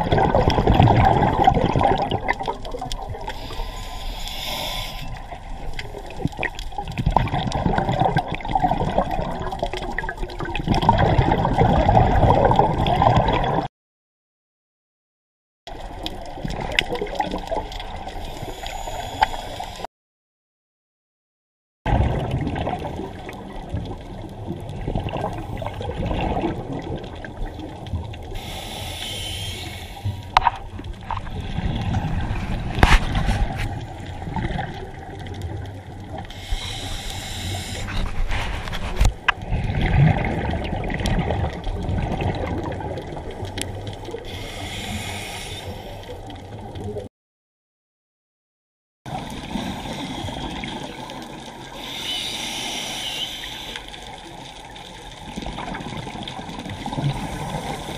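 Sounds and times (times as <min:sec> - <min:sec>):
exhaled bubbles gushing: 0:00.0 - 0:03.6, 0:05.1 - 0:13.7, 0:15.7 - 0:19.2, 0:21.9 - 0:28.6, 0:29.5 - 0:47.1, 0:49.1 - 0:57.9
underwater water rumble: 0:00.0 - 0:13.7, 0:21.9 - 0:47.1, 0:49.1 - 0:57.9
diver breathing through regulator: 0:03.3 - 0:05.4, 0:18.2 - 0:19.9, 0:28.4 - 0:30.4, 0:36.3 - 0:39.1, 0:44.2 - 0:46.2, 0:49.4 - 0:50.7, 0:51.8 - 0:54.1, 0:56.9 - 0:57.9.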